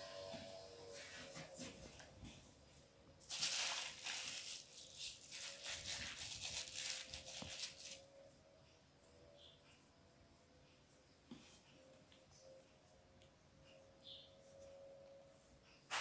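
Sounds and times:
plastic sheeting crinkling: 3.2 - 8.1.

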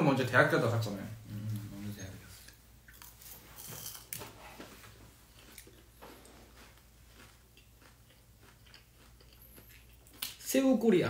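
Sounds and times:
person chewing fried shrimp: 2.5 - 4.4, 5.2 - 10.4.

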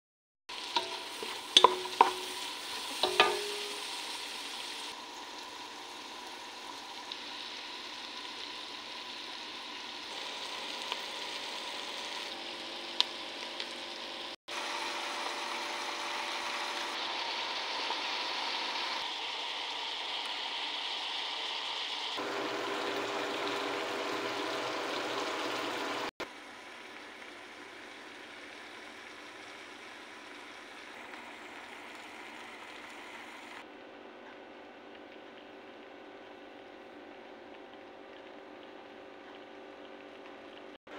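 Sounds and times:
vegetables sizzling in oil: 0.5 - 33.6
wooden spatula knocking pot: 0.8 - 2.4, 3.0 - 3.9.

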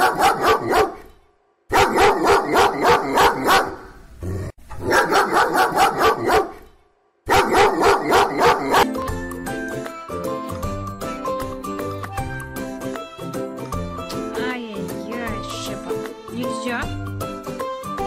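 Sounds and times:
dog barking: 0.0 - 1.1, 1.7 - 4.0, 4.8 - 6.7, 7.3 - 8.9
music jingle: 14.0 - 17.1.

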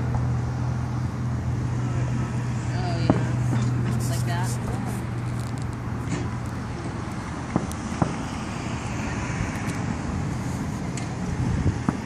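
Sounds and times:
outdoor rumble: 0.0 - 12.0
distant firework pops: 7.5 - 8.2.

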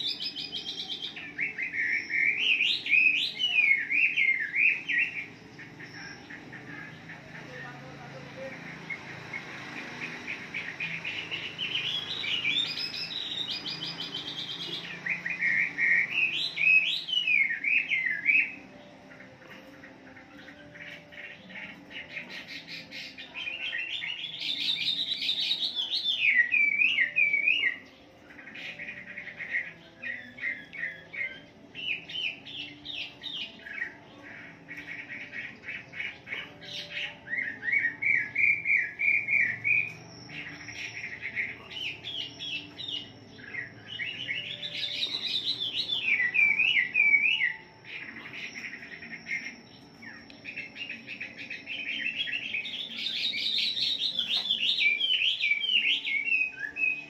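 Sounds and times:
bird singing whistled phrases: 0.0 - 6.4, 10.8 - 18.8, 22.2 - 27.8, 34.7 - 57.0.

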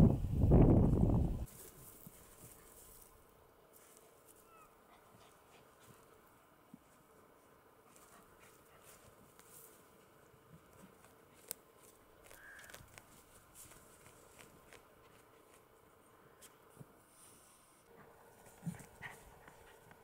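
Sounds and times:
dogs digging in soil: 1.4 - 3.1, 7.8 - 9.9, 17.1 - 20.0.

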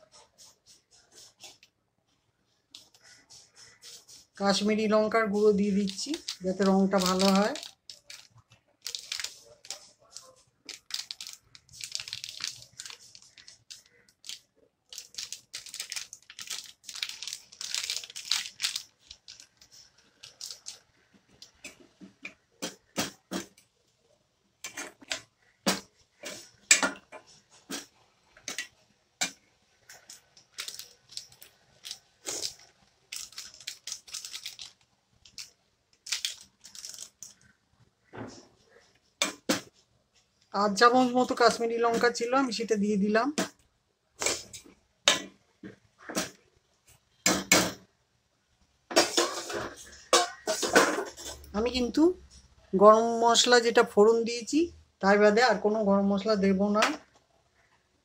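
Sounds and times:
plastic packet crinkling: 4.5 - 21.7, 29.8 - 37.6
steel ladle scraping a pot: 49.0 - 51.5.

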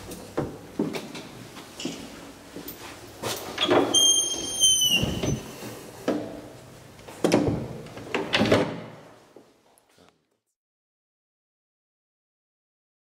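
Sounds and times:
door squealing: 3.6 - 5.6.

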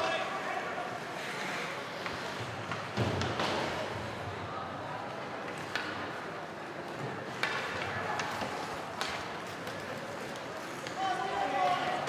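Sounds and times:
hockey sticks clacking on puck: 1.1 - 4.0, 5.4 - 12.0.

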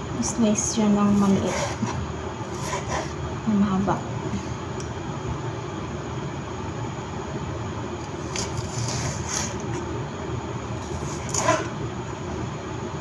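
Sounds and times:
knife cutting on wooden board: 1.1 - 3.2, 8.3 - 9.8, 10.8 - 11.8.

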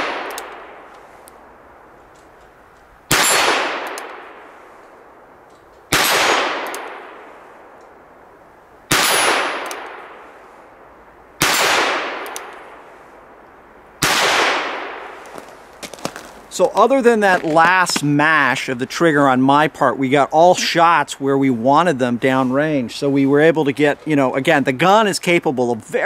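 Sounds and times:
revolver hammer cocking: 0.0 - 1.4, 3.1 - 4.4, 5.5 - 8.0, 8.9 - 10.2, 11.4 - 12.8.

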